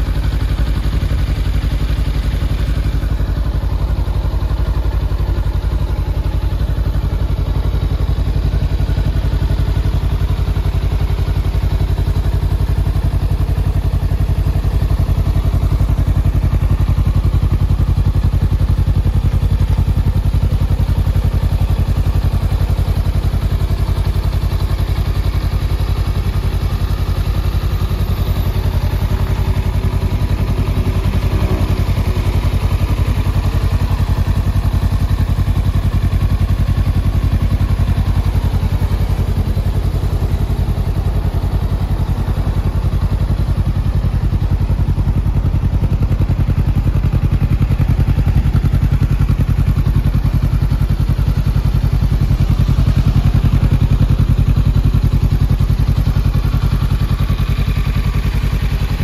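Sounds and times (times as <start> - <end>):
motorcycle engine idling: 0.0 - 59.0.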